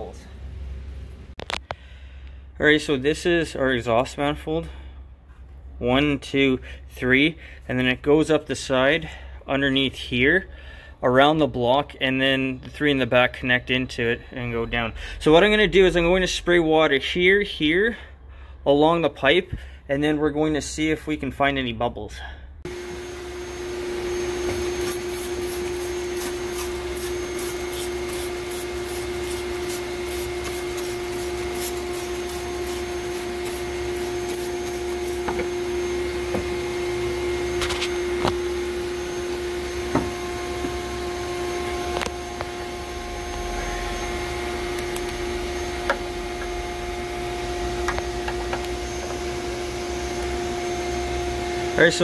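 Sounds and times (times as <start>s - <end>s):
shop vac humming: 22.2s - 52.0s.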